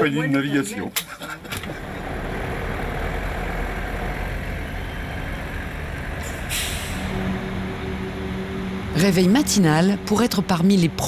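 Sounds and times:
vehicle engines rumbling: 0.0 - 11.0
short hiss: 6.4 - 7.1.

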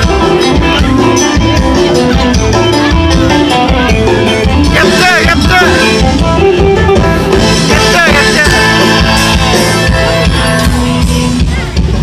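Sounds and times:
loud live band music: 0.0 - 12.0.

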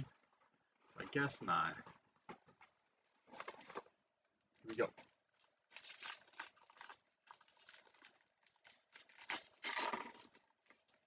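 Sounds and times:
foil wrapper tearing and crinkling: 5.7 - 11.0.

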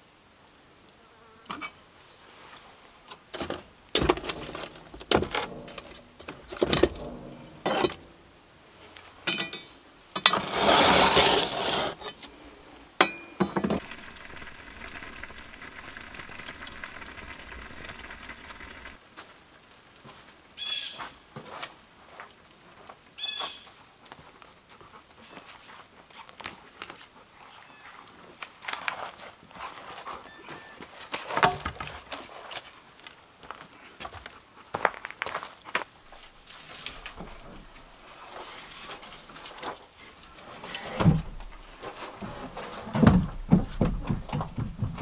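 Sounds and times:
pan scraping into oven: 4.0 - 8.1, 10.2 - 12.1.

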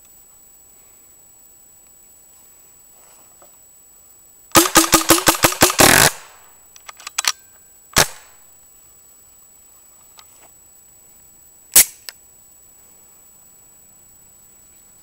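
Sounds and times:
paintball marker firing: 4.6 - 6.3.

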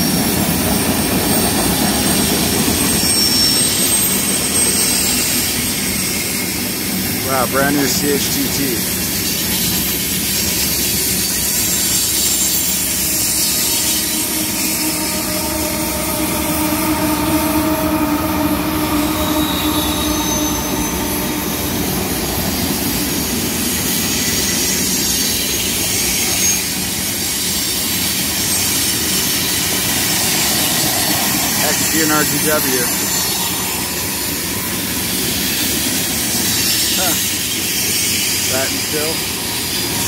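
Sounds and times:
freight train rumbling and clattering: 0.0 - 40.0
wheel squeal: 1.3 - 7.0, 9.0 - 40.0
high whine: 11.1 - 23.9, 28.2 - 36.4.

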